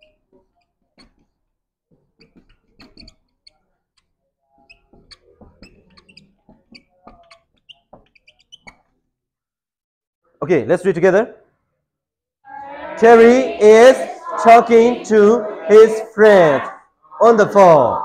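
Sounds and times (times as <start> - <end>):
marker squeaking on whiteboard: 0.0 - 9.1.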